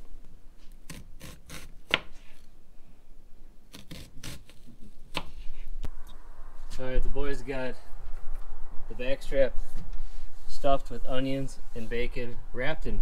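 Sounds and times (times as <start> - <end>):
knife slicing onion on plastic board: 0.9 - 2.4, 3.7 - 5.6.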